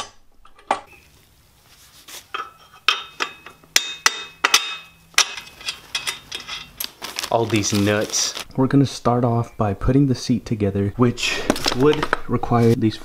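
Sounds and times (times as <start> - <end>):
metal tubes knocking together: 2.3 - 7.0.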